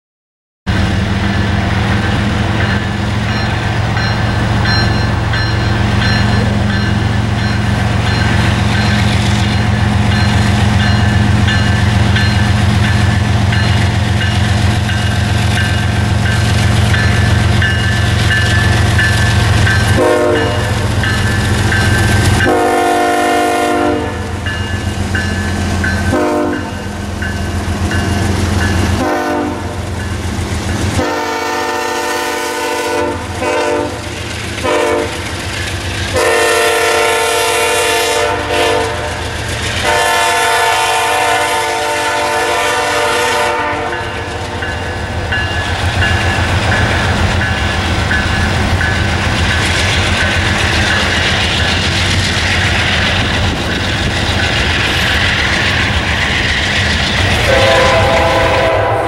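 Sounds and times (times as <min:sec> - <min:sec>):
diesel locomotive engine drone: 0:00.7 - 0:59.0
locomotive horn: 0:19.8 - 0:20.9, 0:22.4 - 0:24.4, 0:26.0 - 0:26.8, 0:29.0 - 0:29.8, 0:31.0 - 0:35.2, 0:36.1 - 0:39.2, 0:39.8 - 0:44.3, 0:57.3 - 0:59.0.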